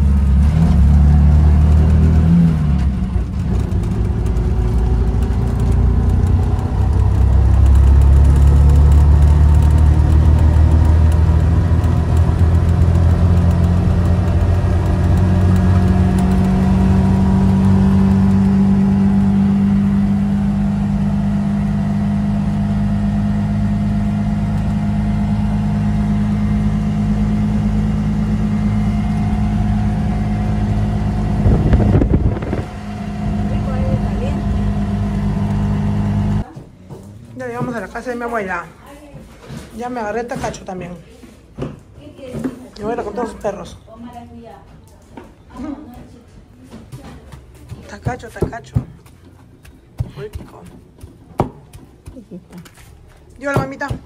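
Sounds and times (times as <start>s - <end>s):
motorcycle taxi engine driving: 0.0s - 38.8s.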